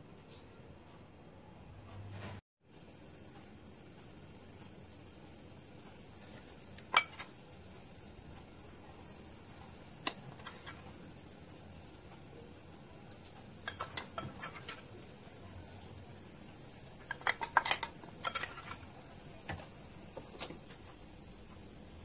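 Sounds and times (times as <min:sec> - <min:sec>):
metal spoon clinking on glass jar: 0:13.6 - 0:14.9, 0:17.0 - 0:18.9.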